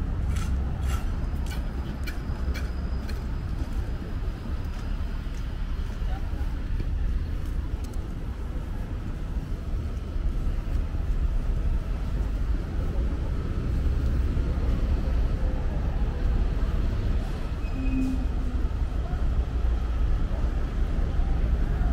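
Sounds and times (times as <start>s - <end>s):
low rumble of traffic: 0.0s - 21.9s
brief tone: 17.6s - 18.5s.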